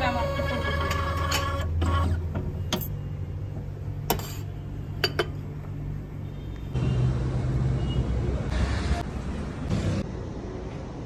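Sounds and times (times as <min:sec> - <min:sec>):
coffee cup and saucer clinking: 0:04.1 - 0:05.5.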